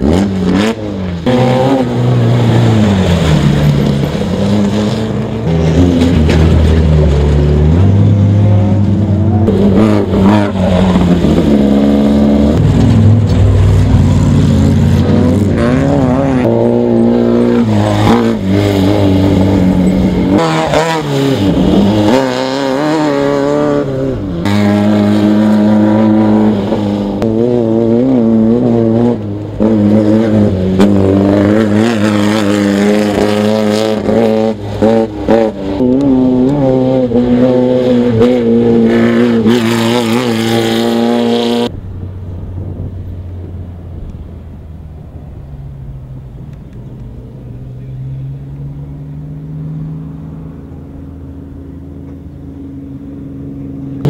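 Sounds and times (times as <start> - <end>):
loud engines revving: 0.0 - 54.0
off-road vehicles speeding past: 0.0 - 54.0.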